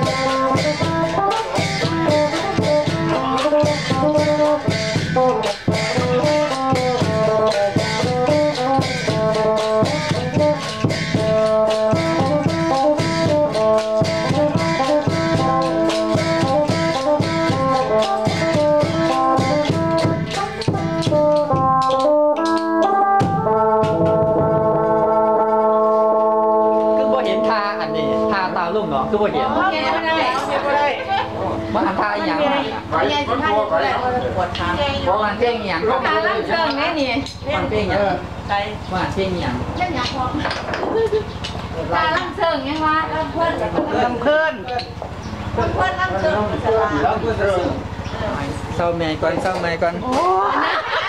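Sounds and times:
wooden clappers clacking: 0:00.0 - 0:23.2, 0:39.8 - 0:41.8
wind instrument playing chords: 0:00.0 - 0:35.1.

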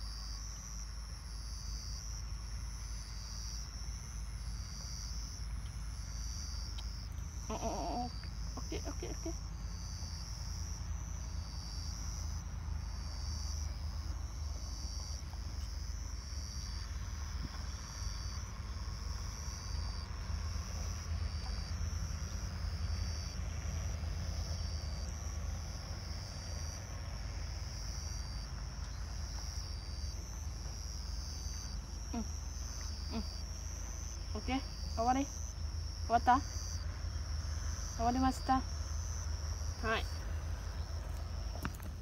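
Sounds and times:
insects chirping in pulsing trill: 0:00.0 - 0:42.0.

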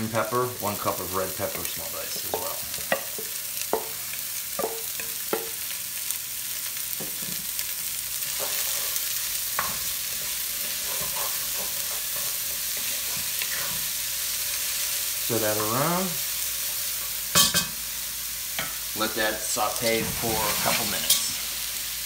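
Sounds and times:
vegetables sizzling in hot oil: 0:00.0 - 0:22.0
wooden spoon stirring in pot: 0:01.5 - 0:04.0, 0:08.2 - 0:14.0.

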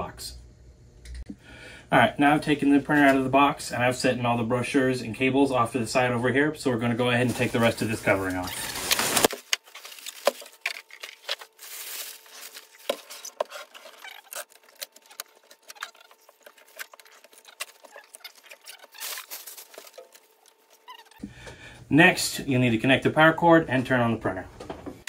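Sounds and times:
plastic bag rustling and crinkling: 0:06.8 - 0:21.2.

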